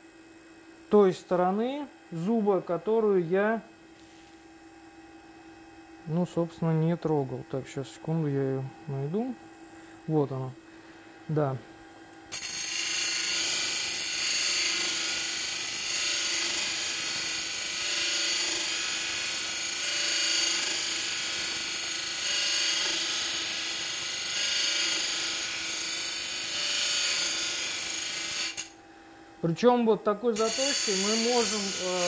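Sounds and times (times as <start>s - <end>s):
grinding wheel sharpening saw teeth: 12.3s - 28.7s, 30.4s - 32.0s.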